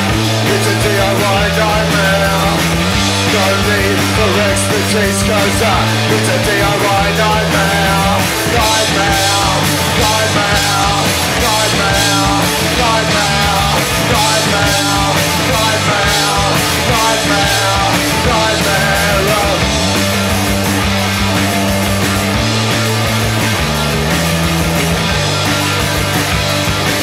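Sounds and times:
bass notes: 0:00.0 - 0:27.0
distorted electric guitars: 0:00.0 - 0:27.0
drums: 0:00.0 - 0:27.0.

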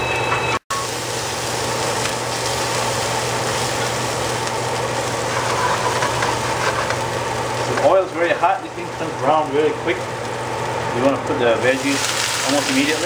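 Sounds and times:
garlic sizzling in hot oil: 0:00.7 - 0:13.0.

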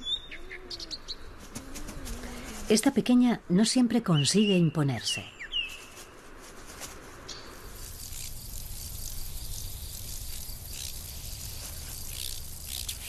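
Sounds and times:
insects chirring: 0:07.3 - 0:13.0
sharp insect chirps: 0:07.3 - 0:13.0.

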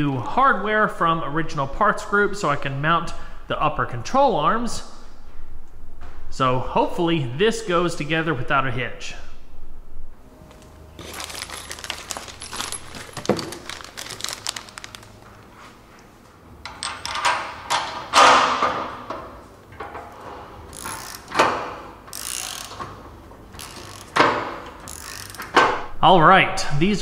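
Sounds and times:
metal parts clinking and jingling: 0:11.0 - 0:15.1.

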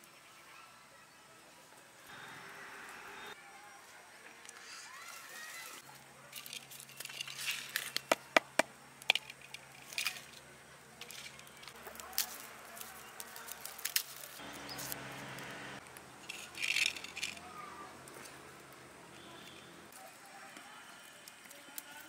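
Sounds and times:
garlic cracking and rustling: 0:05.4 - 0:14.4.

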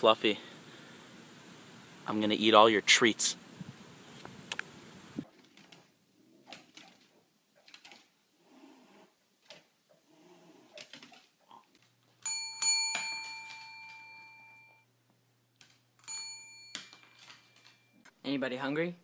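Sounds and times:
faint indoor sounds: 0:00.0 - 0:19.0
desk bell dinging: 0:12.2 - 0:14.8, 0:16.0 - 0:18.0.

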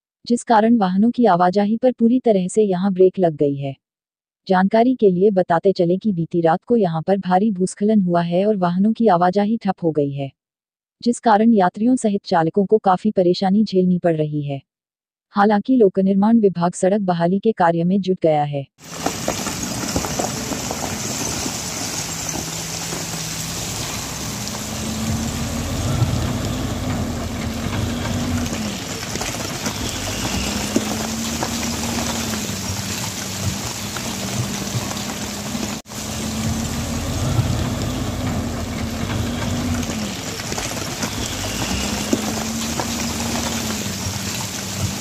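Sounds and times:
diesel engine revving: 0:18.8 - 0:45.0
rain hissing: 0:18.8 - 0:45.0.

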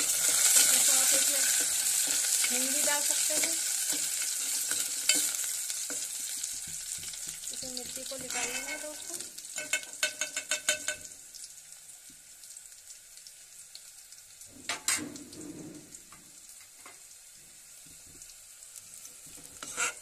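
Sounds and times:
food sizzling in oil: 0:00.0 - 0:20.0
metal ladle scraping a pot: 0:03.4 - 0:05.5, 0:08.2 - 0:11.0, 0:19.6 - 0:20.0.

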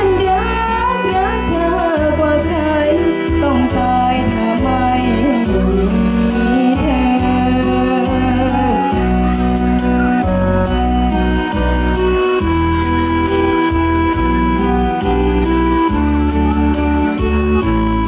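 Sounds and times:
girl singing into microphone: 0:00.0 - 0:09.4
backing music with heavy bass: 0:00.0 - 0:18.0.

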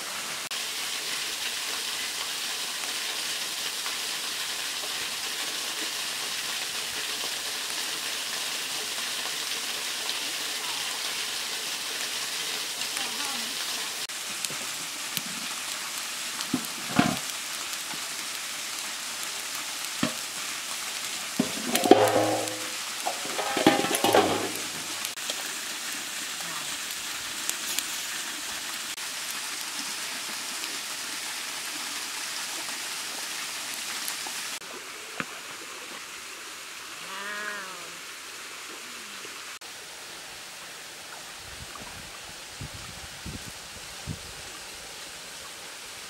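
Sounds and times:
fish sizzling in a wok: 0:00.0 - 0:35.6, 0:36.2 - 0:38.8
metal clanks: 0:21.4 - 0:25.1.

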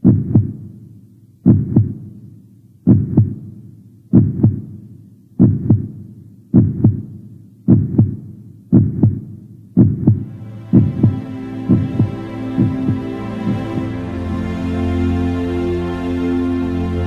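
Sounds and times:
heartbeat thumping: 0:00.0 - 0:00.8, 0:01.4 - 0:02.2, 0:02.9 - 0:14.0
music: 0:10.1 - 0:17.0.

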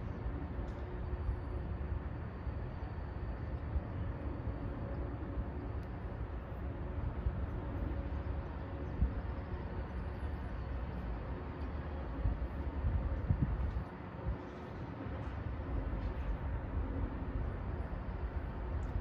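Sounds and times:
urban background rumble: 0:00.0 - 0:19.0.

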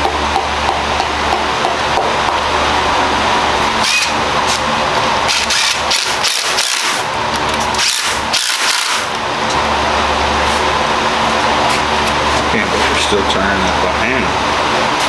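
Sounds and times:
steady background hum: 0:00.0 - 0:15.0
cordless drill whirring: 0:05.3 - 0:07.0, 0:07.7 - 0:09.2.

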